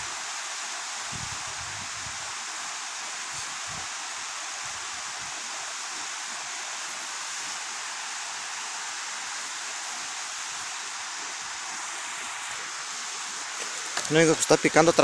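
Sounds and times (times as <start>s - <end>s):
river water rushing at waterfall: 0.0s - 15.0s.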